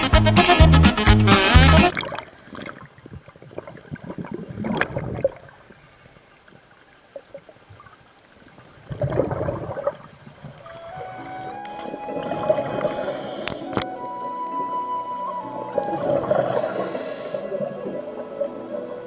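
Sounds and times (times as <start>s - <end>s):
music: 0.0s - 1.9s, 10.7s - 19.0s
water splashing and gurgling: 1.4s - 19.0s
muffled underwater bubbling: 1.5s - 5.8s, 8.7s - 19.0s.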